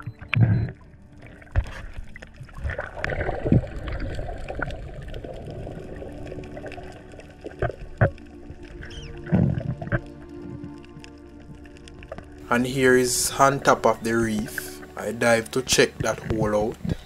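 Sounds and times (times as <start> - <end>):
underwater clicks and pops: 0.0 - 5.5, 6.2 - 12.4
underwater water rushing: 0.0 - 17.0
underwater thumps: 1.5 - 4.8.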